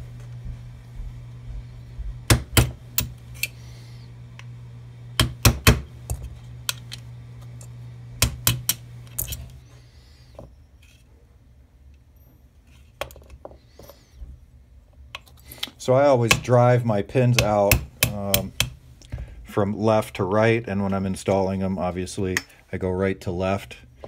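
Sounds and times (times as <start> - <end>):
hammer tapping metal punch: 2.2 - 3.5, 5.2 - 5.9, 8.2 - 8.8.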